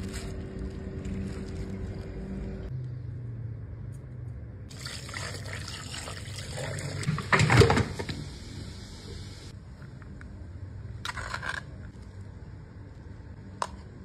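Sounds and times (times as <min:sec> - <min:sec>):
broth pouring into a colander: 0:04.7 - 0:07.1.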